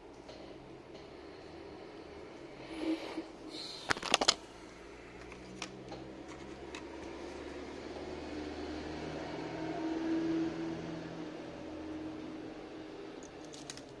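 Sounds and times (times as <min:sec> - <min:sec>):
steady low hum: 0:00.0 - 0:08.8
small hard parts clicking: 0:13.2 - 0:14.0.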